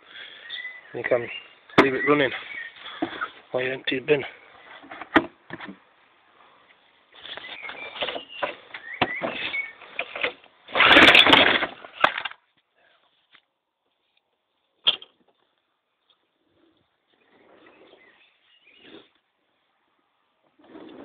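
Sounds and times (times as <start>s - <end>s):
handling clatter: 7.5s - 12.4s
recoil starter rasping pull: 10.0s - 12.2s.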